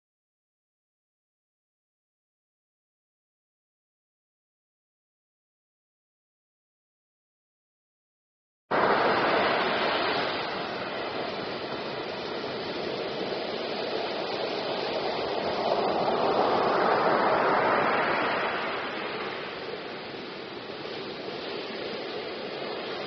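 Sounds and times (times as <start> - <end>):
waves breaking on a beach: 8.7 - 23.0.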